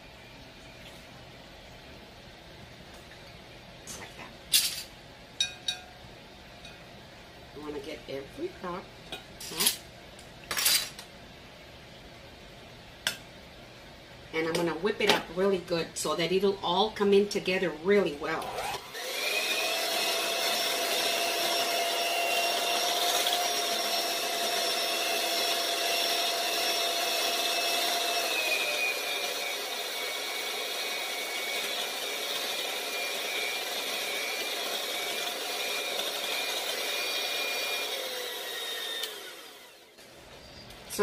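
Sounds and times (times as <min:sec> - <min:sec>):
electric hand mixer whining: 0:18.4 - 0:39.9.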